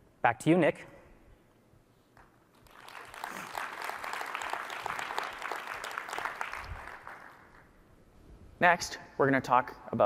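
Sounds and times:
audience applauding: 2.6 - 7.7.

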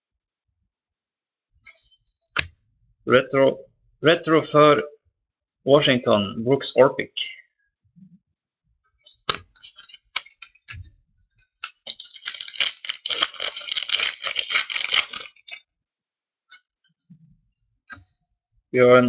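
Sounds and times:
cards clicking and tapping: 9.1 - 15.6
cards rustling: 9.1 - 15.6.

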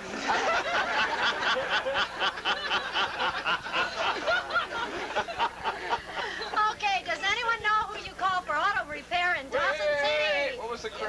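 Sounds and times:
group of people laughing: 0.0 - 6.6.

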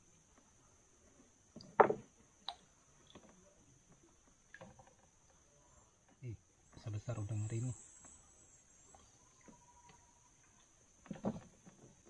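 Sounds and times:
knocks against canoe: 1.6 - 2.1, 11.0 - 12.0.

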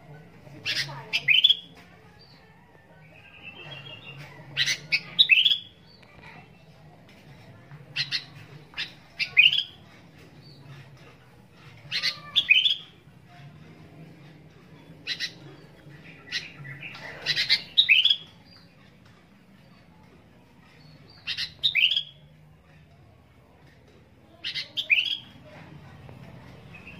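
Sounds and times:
bulbul singing: 8.0 - 9.8, 20.8 - 22.3.

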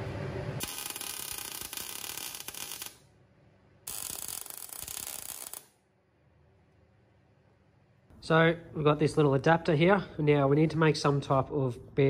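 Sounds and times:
welder arc crackling: 0.6 - 3.0, 3.9 - 5.8.

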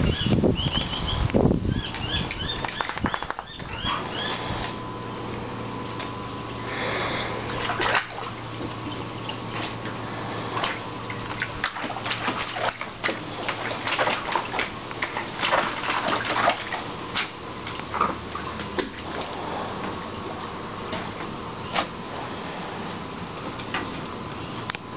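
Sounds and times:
water splashing in paddling pool: 6.7 - 22.8.

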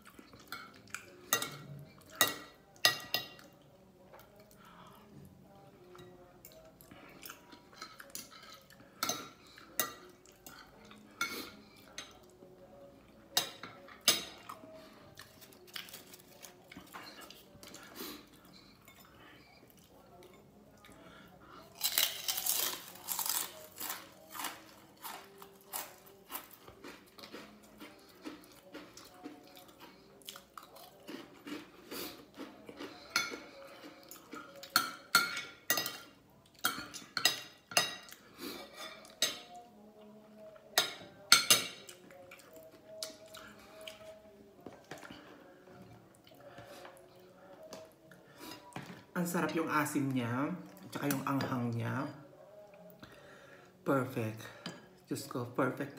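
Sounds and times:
cutlery clinking on ceramic plate: 40.7 - 42.0.

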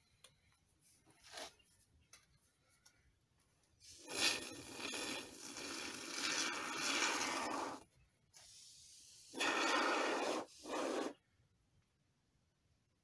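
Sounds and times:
spray foam can hissing: 3.9 - 7.8, 8.4 - 11.2.

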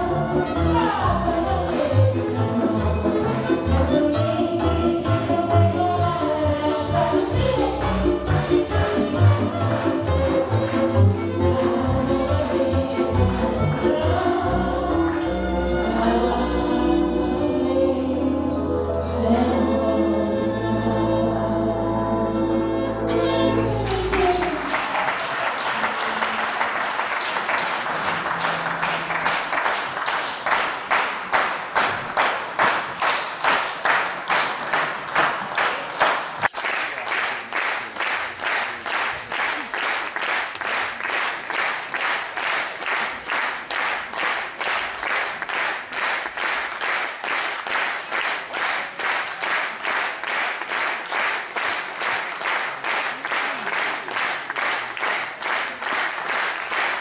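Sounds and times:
audience clapping in rhythm: 0.0 - 2.5, 7.2 - 16.0, 23.5 - 57.0.

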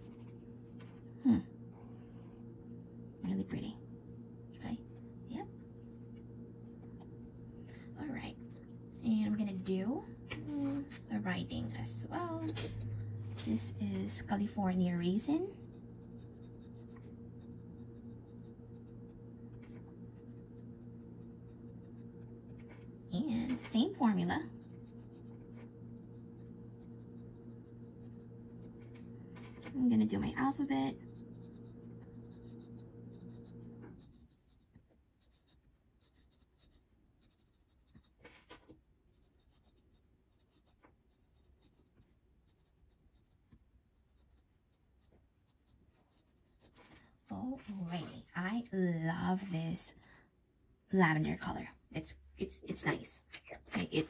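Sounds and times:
pen nib scratching on paper: 0.0 - 1.0, 8.5 - 47.0
steady low hum: 0.0 - 54.0.

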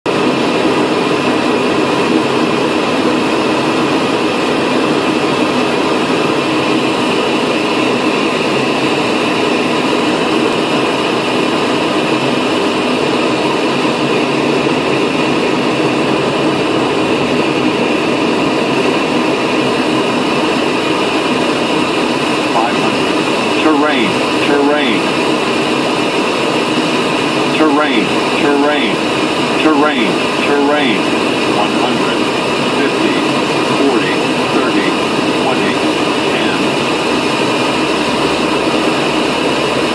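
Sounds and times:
aircraft engine drone: 0.1 - 39.9
faint high whine: 10.8 - 39.9.

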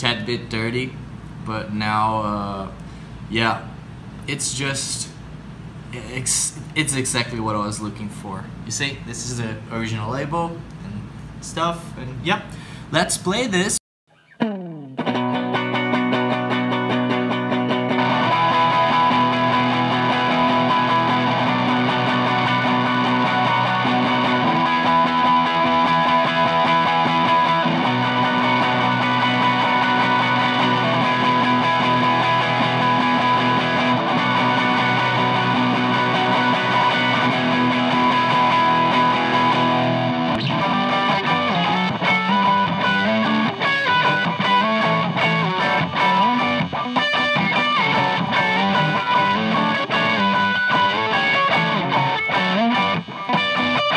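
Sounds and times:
overdriven electric guitar chords: 14.4 - 53.9.

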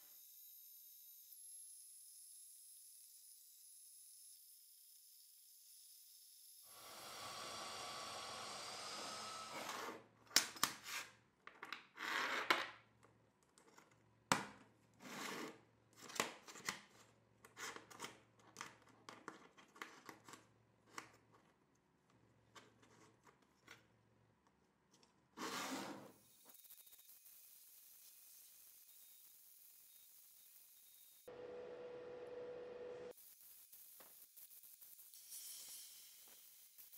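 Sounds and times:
band saw cutting steel: 6.6 - 10.0.

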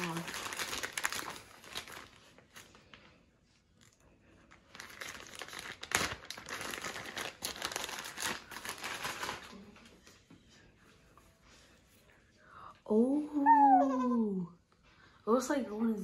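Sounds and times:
plastic bag crinkling: 0.0 - 2.9, 4.5 - 9.6.

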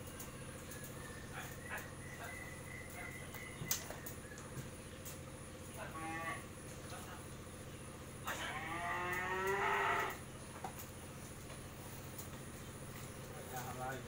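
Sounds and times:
cattle mooing: 5.9 - 6.5, 8.3 - 10.2.

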